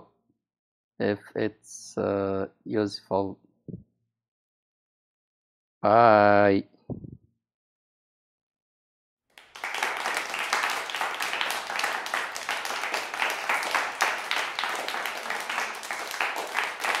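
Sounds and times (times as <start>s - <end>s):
crowd applause: 9.4s - 17.0s.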